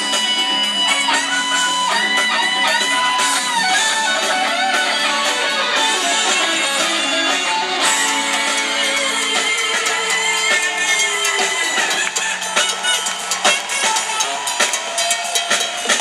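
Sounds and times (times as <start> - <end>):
bass: 0.0 - 16.0
drums: 0.0 - 16.0
electric guitar: 0.0 - 16.0
saxophone: 0.0 - 16.0.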